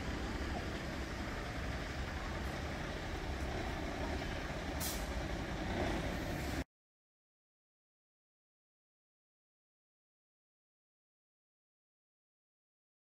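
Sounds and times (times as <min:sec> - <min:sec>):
city traffic rumble: 0:00.0 - 0:06.7
short hiss: 0:04.8 - 0:05.2.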